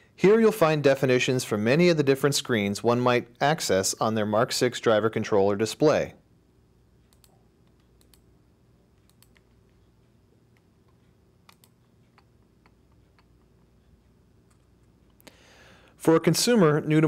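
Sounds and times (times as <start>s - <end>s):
computer mouse clicks: 7.1s - 8.3s, 9.0s - 9.8s, 10.5s - 13.6s.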